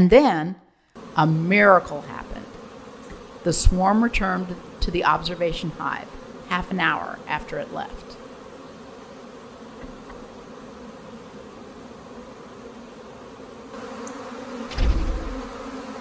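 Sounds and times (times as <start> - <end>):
bee swarm buzzing: 1.0 - 16.0
low thump: 14.7 - 15.5.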